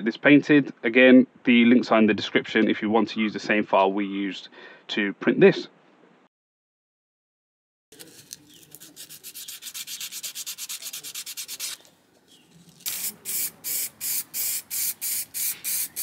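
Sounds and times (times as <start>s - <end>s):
sandpaper scrubbing plastic: 8.0s - 11.9s
spray paint can hissing: 8.8s - 11.8s, 12.8s - 16.0s.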